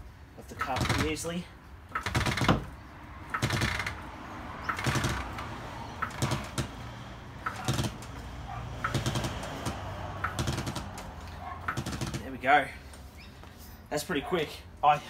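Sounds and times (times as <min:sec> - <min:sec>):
trolley jack knocking and squeaking: 0:00.6 - 0:01.3, 0:01.9 - 0:04.0, 0:04.6 - 0:06.8, 0:07.4 - 0:08.2, 0:08.8 - 0:12.4.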